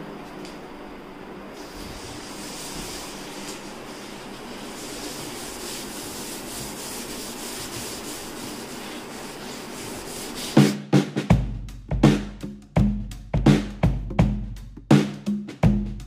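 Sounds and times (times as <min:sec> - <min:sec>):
scrubbing a sink: 0:01.6 - 0:10.7
music with heavy drum beat: 0:10.4 - 0:16.0.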